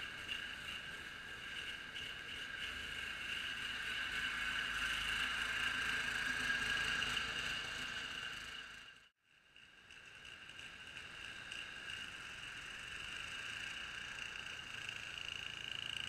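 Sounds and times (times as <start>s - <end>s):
garden tractor engine running: 9.6s - 16.0s.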